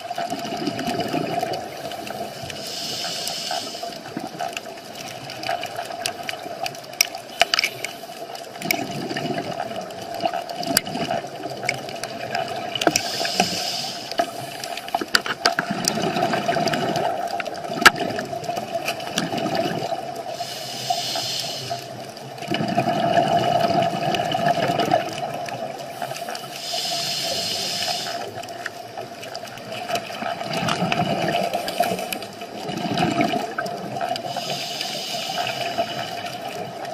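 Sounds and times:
exhaled air bubbling: 0.0s - 36.9s
regulator hiss on inhale: 1.7s - 4.2s, 7.3s - 8.4s, 12.8s - 15.1s, 20.2s - 22.1s, 25.8s - 28.4s, 31.3s - 32.4s, 34.2s - 36.7s.

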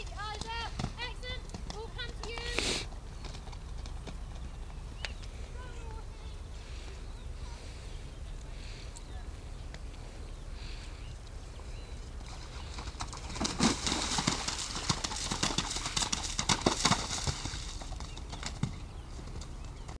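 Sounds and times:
hoofbeats splashing through water: 11.6s - 20.0s.

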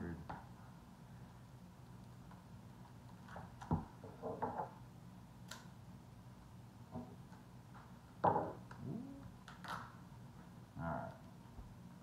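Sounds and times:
knock on tabletop: 8.2s - 8.6s.

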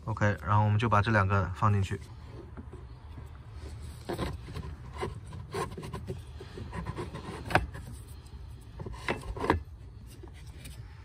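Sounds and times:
filter frames scraping plastic housing: 3.6s - 10.8s.

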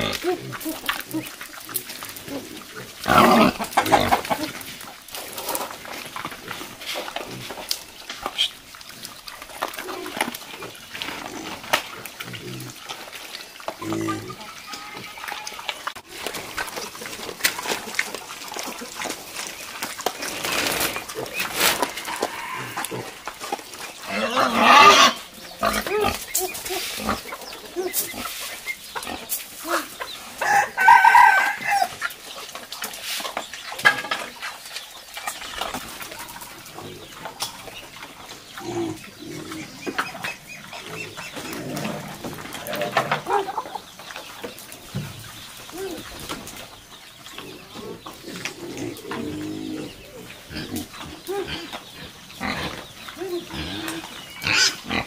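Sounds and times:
farmyard animal noises: 0.0s - 55.0s
rustling: 15.8s - 30.6s
rooster crowing: 21.9s - 22.9s, 30.4s - 31.9s.

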